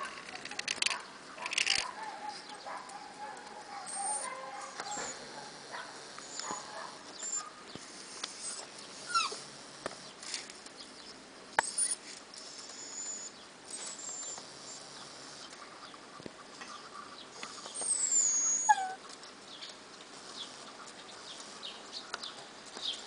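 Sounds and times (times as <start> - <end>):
puppy whimpering: 3.9 - 5.3, 6.2 - 7.5, 8.3 - 9.4, 11.6 - 14.9, 17.8 - 19.0.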